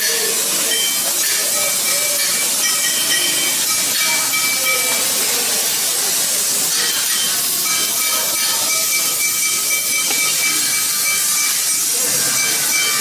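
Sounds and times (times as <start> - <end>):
workshop machinery hiss: 0.0 - 13.0.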